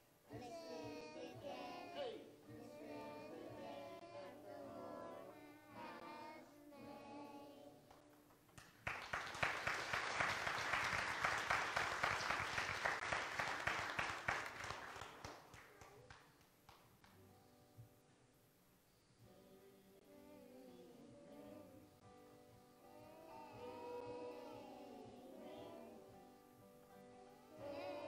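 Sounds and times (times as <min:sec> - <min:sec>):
children singing: 0:00.3 - 0:07.9, 0:19.3 - 0:22.0, 0:22.8 - 0:26.3, 0:27.2 - 0:28.0
crowd applauding: 0:08.6 - 0:17.2.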